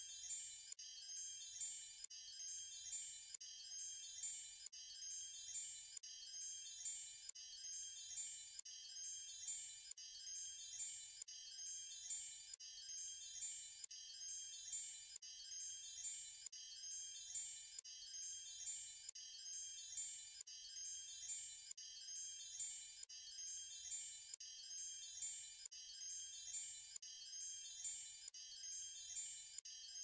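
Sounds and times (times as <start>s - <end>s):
high tinkling chimes loop: 23.3s - 30.0s.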